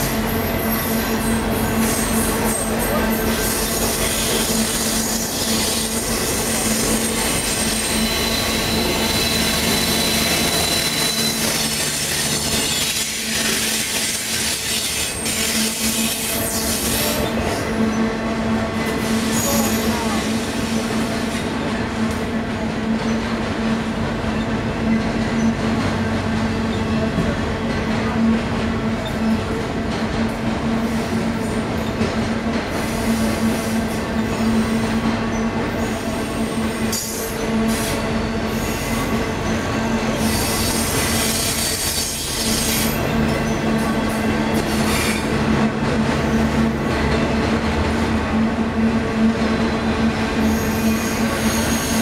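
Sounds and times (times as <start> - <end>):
train wheels rumbling on rail: 0.0 - 52.0
wheels squealing: 3.4 - 18.1.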